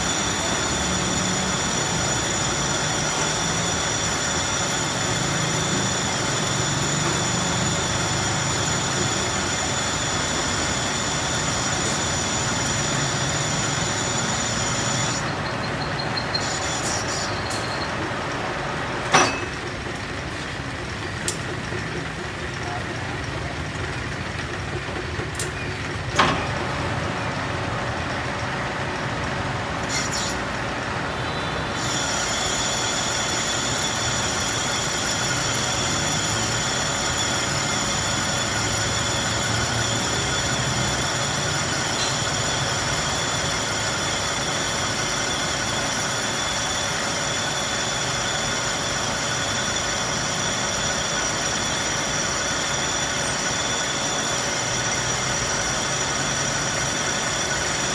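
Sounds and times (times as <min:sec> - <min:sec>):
metal lathe humming: 0:00.0 - 0:25.3, 0:26.0 - 0:57.9
high-pitched metallic whine: 0:00.0 - 0:57.9
sharp metallic knock: 0:19.1 - 0:19.5.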